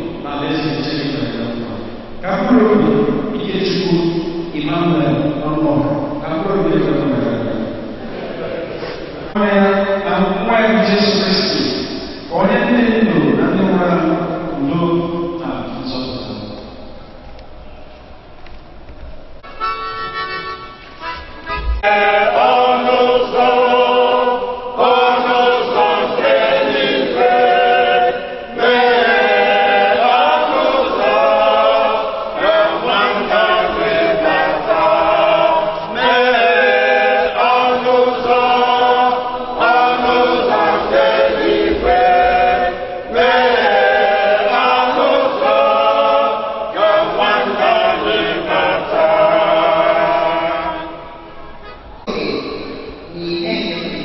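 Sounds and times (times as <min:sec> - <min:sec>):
people singing a hymn unaccompanied: 0:21.5 - 0:51.4.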